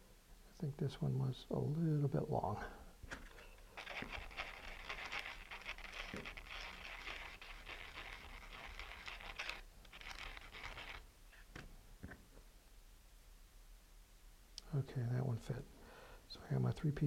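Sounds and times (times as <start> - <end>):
metal tube sanding on sandpaper: 3.8 - 11.0.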